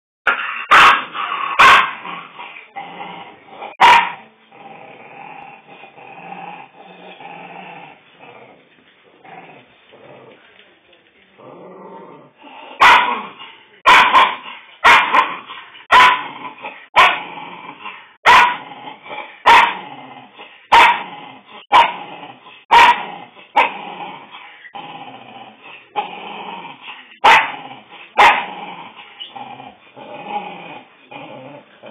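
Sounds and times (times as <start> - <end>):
small dog barking: 0.3 - 2.0, 3.8 - 4.2, 12.8 - 13.2, 13.8 - 16.3, 16.9 - 17.2, 18.2 - 18.6, 19.4 - 19.8, 20.7 - 21.0, 21.7 - 22.0, 22.7 - 23.0, 27.2 - 27.6, 28.2 - 28.5
small dog growling: 4.4 - 10.6, 11.4 - 13.4, 16.2 - 31.9.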